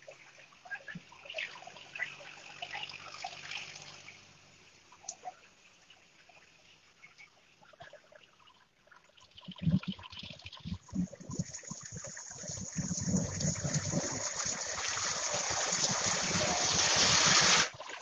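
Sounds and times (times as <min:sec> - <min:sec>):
heavy rain on road: 0:15.3 - 0:17.7.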